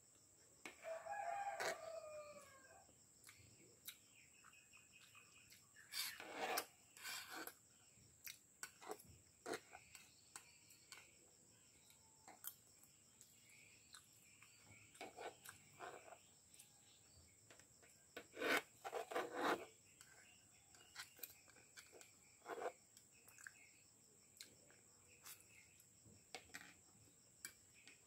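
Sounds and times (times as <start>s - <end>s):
fork and spoon scraping plastic plate: 5.9s - 7.6s, 18.2s - 19.7s, 20.9s - 22.8s.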